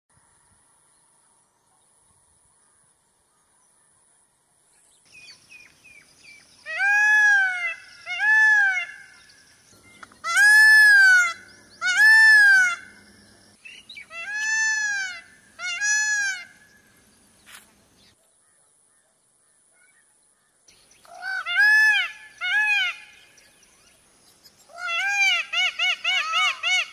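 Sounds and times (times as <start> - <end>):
peacock calling: 5.1 - 18.2, 21.0 - 23.9, 24.6 - 26.9.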